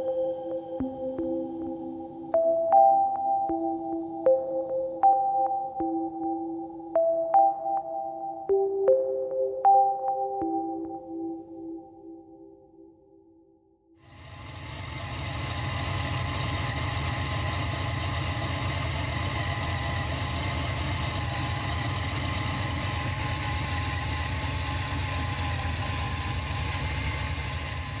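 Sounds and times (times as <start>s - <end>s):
car engine idling: 14.0s - 28.0s.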